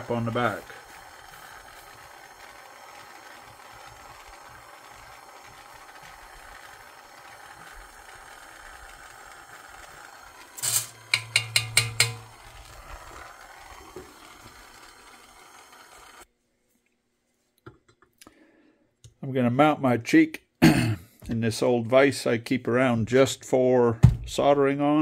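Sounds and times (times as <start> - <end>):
torch flame hissing: 0.0 - 16.3.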